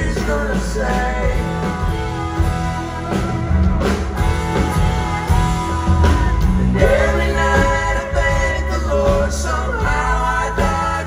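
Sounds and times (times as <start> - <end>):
country band playing: 0.0 - 11.0.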